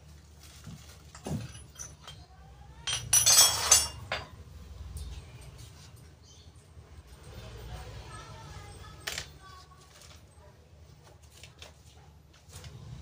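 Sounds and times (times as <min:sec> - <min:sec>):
metal clinking: 0:01.1 - 0:05.2.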